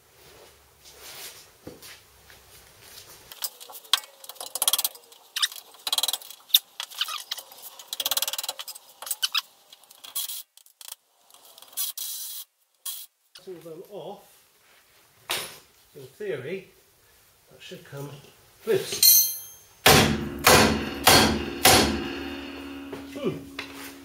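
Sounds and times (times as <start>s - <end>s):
tool clinking on nuts: 18.9s - 19.9s.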